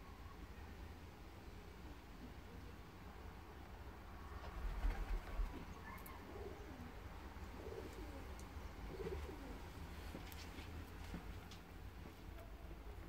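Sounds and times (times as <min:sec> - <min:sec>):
pigeon cooing: 0:05.8 - 0:09.7.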